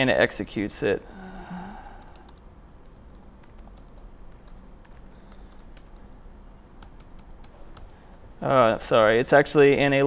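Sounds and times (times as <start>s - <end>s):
laptop keyboard typing: 2.0s - 6.2s, 6.8s - 8.0s.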